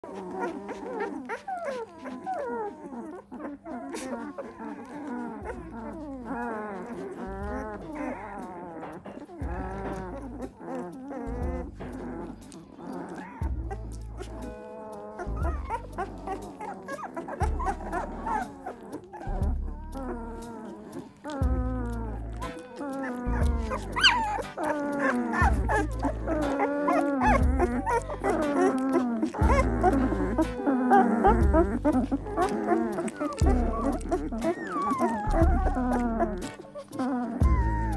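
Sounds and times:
blues music with deep bass: 0:00.0 - 0:37.9
puppies squeaking and groaning: 0:00.0 - 0:37.9
blues music with bass line: 0:27.2 - 0:37.9.

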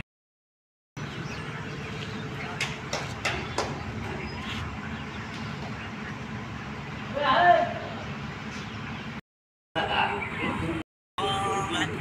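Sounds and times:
diesel engine idling: 0:01.0 - 0:09.2
sharp knocks: 0:02.5 - 0:04.2.

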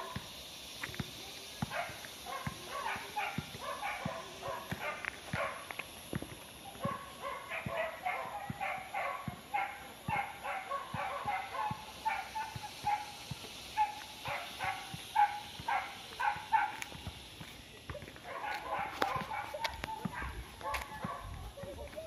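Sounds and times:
dog barking: 0:01.7 - 0:05.7, 0:06.8 - 0:13.2, 0:13.8 - 0:16.9, 0:18.2 - 0:21.7.

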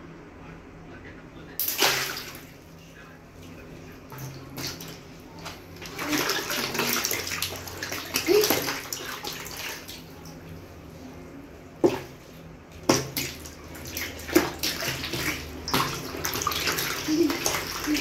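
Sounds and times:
water sloshing in plastic basin: 0:03.5 - 0:10.6, 0:11.8 - 0:18.0.

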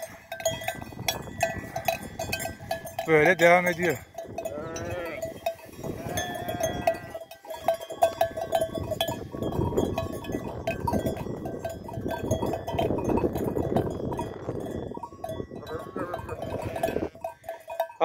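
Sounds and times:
wind buffeting microphone: 0:00.0 - 0:03.1, 0:03.8 - 0:17.5
neck bells clanking: 0:00.0 - 0:18.0
sheep bleating: 0:04.4 - 0:05.4, 0:06.0 - 0:07.3, 0:15.7 - 0:17.3.

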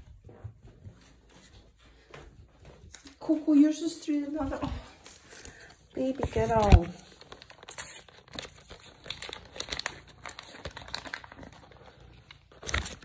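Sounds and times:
crinkling and rustling: 0:00.0 - 0:13.0
small crackling clicks: 0:06.2 - 0:13.0.

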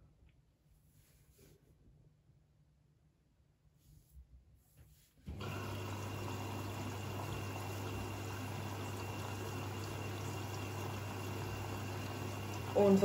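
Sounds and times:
water rushing into washing machine: 0:05.3 - 0:13.0
water valve opening: 0:05.3 - 0:13.0.

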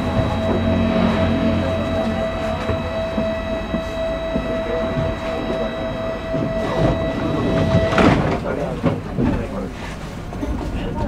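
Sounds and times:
tram electrical whine: 0:00.0 - 0:11.0
tram low rumble: 0:00.0 - 0:11.0.

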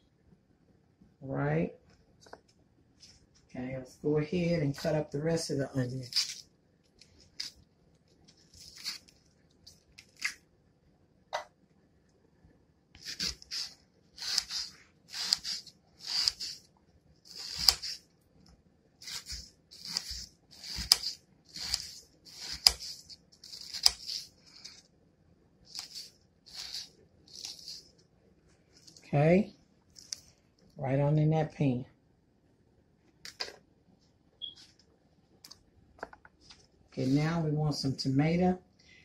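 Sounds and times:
knife dicing onion: 0:06.1 - 0:06.4, 0:13.0 - 0:16.6, 0:17.3 - 0:18.1, 0:19.0 - 0:24.8, 0:25.7 - 0:27.9.

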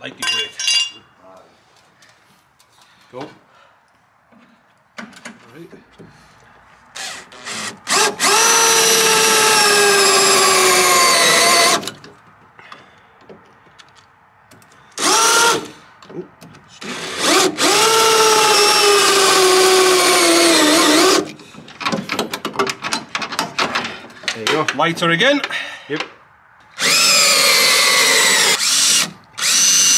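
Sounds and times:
power tool motor whine: 0:26.8 - 0:29.9.

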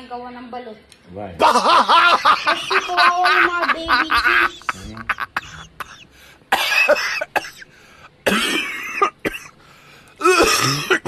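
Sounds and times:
person coughing: 0:04.5 - 0:09.6, 0:10.2 - 0:11.0.

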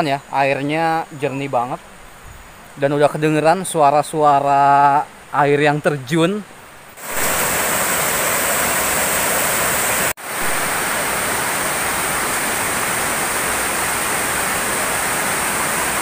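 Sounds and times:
water rushing over weir: 0:07.0 - 0:16.0.

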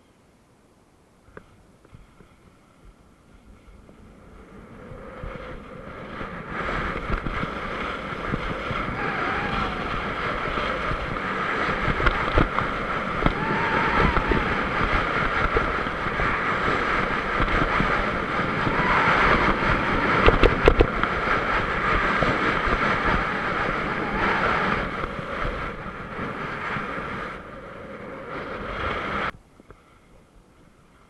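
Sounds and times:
wind on microphone: 0:01.2 - 0:31.0
skis scraping over snow: 0:01.4 - 0:30.0.

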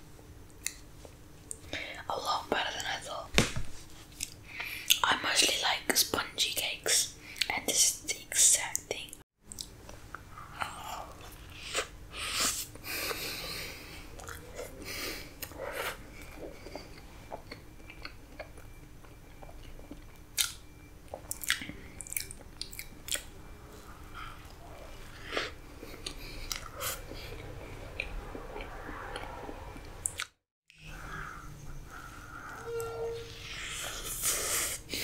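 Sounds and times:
chewing with wet mouth clicks: 0:09.5 - 0:11.9, 0:14.2 - 0:14.7, 0:15.4 - 0:23.3, 0:24.4 - 0:30.3.

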